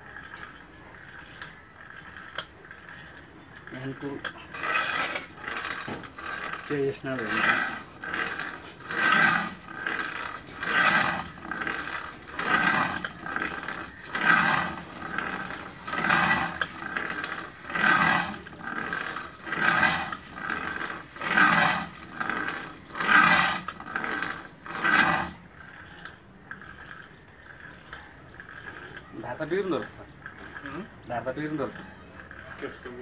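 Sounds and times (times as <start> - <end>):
blade scraping on sharpener: 2.1 - 26.1.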